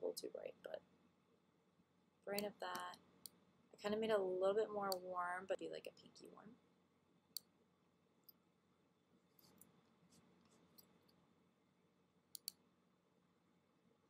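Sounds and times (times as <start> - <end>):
computer mouse clicks: 2.3 - 3.4, 12.3 - 12.6.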